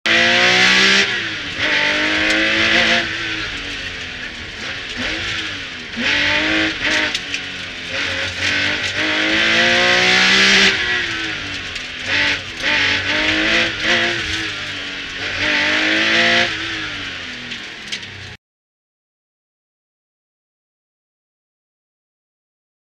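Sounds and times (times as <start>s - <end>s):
road noise: 0.0s - 18.4s
car engine revving hard: 0.1s - 18.3s.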